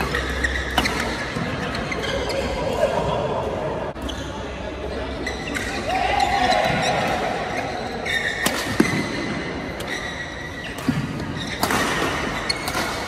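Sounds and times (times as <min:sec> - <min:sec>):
shoes squeaking on floor: 0:00.0 - 0:02.7, 0:03.9 - 0:13.0
rackets hitting shuttlecock: 0:08.2 - 0:13.0.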